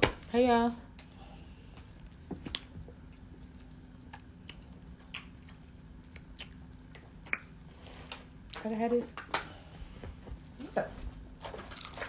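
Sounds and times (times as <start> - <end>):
low steady hum: 0.0 - 12.0
person chewing: 2.4 - 8.3.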